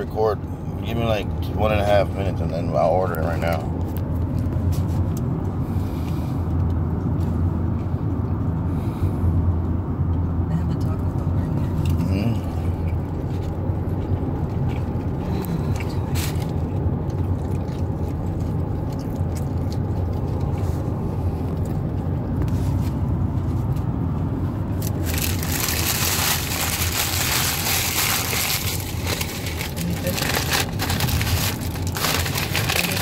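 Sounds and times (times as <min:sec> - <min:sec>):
car interior hum: 0:00.0 - 0:33.0
wrapper and paper bag crinkling: 0:24.8 - 0:33.0.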